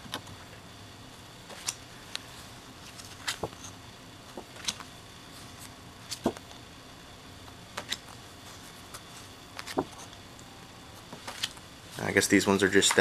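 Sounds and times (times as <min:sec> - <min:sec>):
cards flipped and shuffled: 0:02.8 - 0:03.7, 0:04.4 - 0:04.9, 0:05.6 - 0:06.4, 0:07.7 - 0:08.1, 0:08.9 - 0:10.1, 0:11.1 - 0:11.6.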